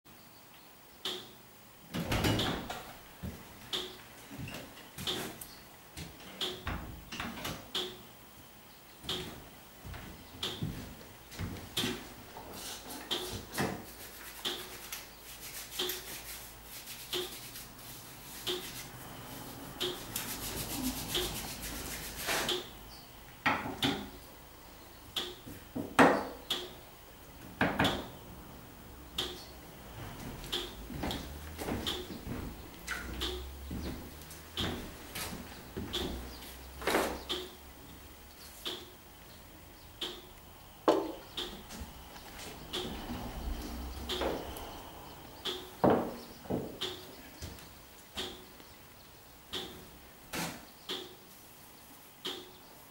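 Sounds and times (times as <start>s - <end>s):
hands rubbing and handling: 12.5s - 22.6s.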